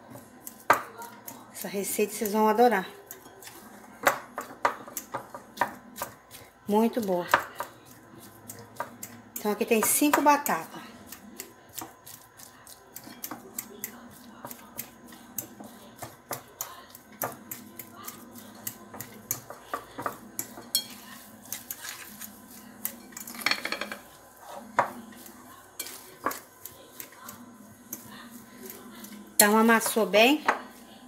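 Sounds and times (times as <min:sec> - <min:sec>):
fork tapping glass bowl: 0:13.0 - 0:21.7, 0:29.0 - 0:30.7.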